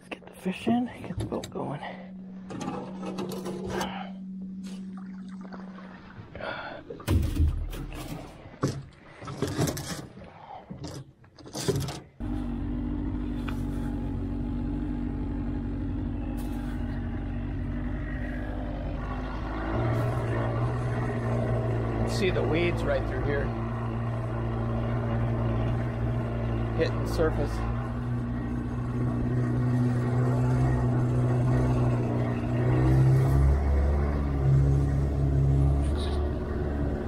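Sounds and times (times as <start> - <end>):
outboard motor running: 0.0 - 11.0, 12.2 - 37.0
gear clunking in metal boat: 2.4 - 4.1, 7.0 - 12.2.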